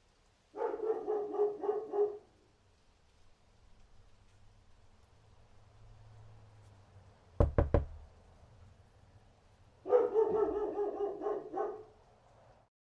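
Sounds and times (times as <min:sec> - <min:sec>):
dog barking: 0:00.5 - 0:02.3, 0:09.8 - 0:12.0
quick knocks: 0:07.4 - 0:08.0.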